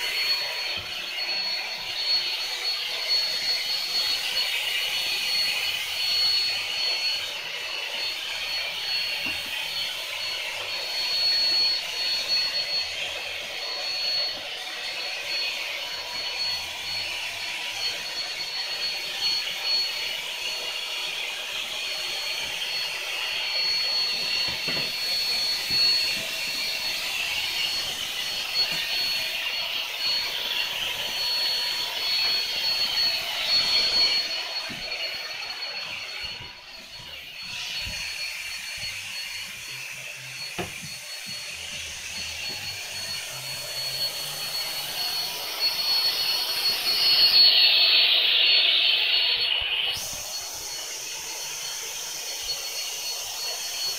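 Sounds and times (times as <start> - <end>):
electric air blower whining: 0.0 - 53.9.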